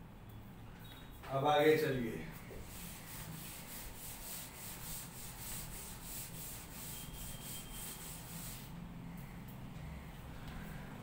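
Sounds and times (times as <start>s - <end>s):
duster wiping a chalkboard: 2.4s - 8.8s.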